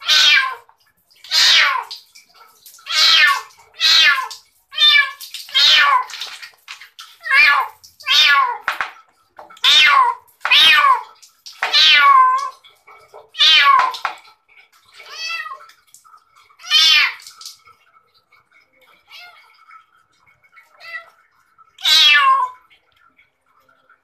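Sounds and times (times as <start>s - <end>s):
kitten meowing loudly: 21.8s - 22.6s.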